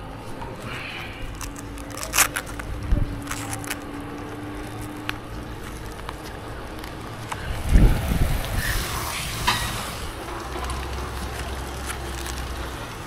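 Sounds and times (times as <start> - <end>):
rope rustling: 0.0 - 13.0
steady low rumble: 0.0 - 13.0
rope gear clicking: 0.3 - 8.7.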